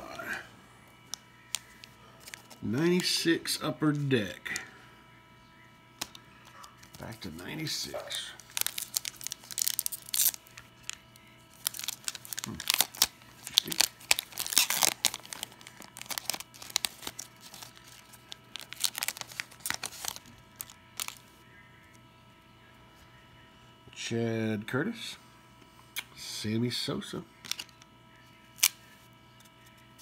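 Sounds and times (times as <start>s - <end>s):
foil wrapper tearing and crinkling: 7.9s - 21.2s, 28.6s - 28.8s.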